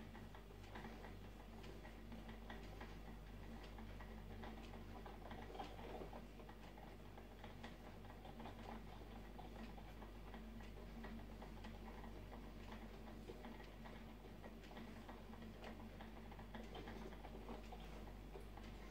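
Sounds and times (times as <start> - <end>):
faint ticks and clicks: 0.0 - 18.9
low electrical hum: 0.0 - 18.9.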